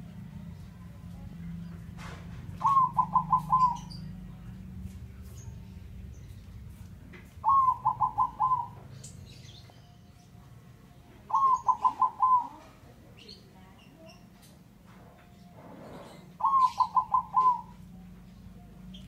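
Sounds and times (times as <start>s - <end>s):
dove cooing: 2.5s - 4.2s, 7.3s - 9.0s, 11.2s - 13.0s, 15.9s - 18.0s.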